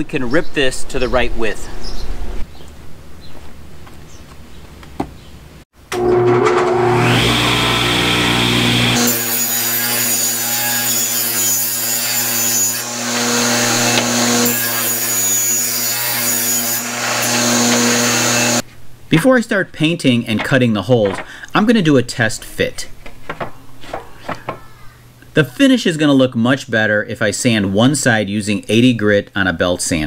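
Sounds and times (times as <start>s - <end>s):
table saw cutting wood: 5.9s - 18.6s.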